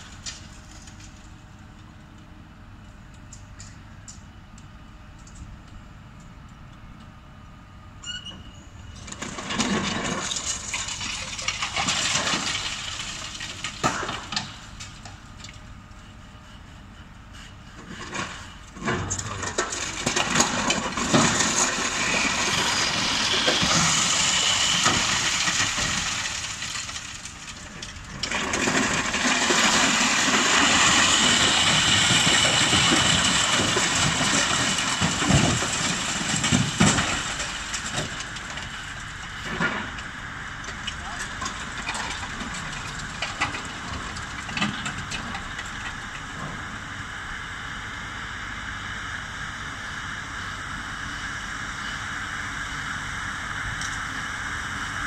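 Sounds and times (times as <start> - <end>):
demolition excavator breaking concrete: 8.9 - 15.6, 17.8 - 46.7
falling rubble: 8.9 - 15.6, 17.8 - 46.8.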